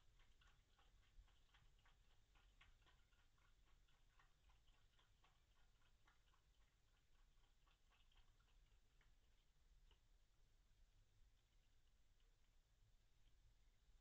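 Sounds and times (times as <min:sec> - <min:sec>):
foxes chewing food clicks: 0:00.0 - 0:10.4.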